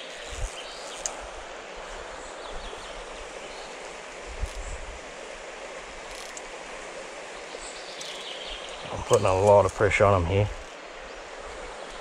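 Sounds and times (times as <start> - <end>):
river rushing over stones: 0.0 - 12.0.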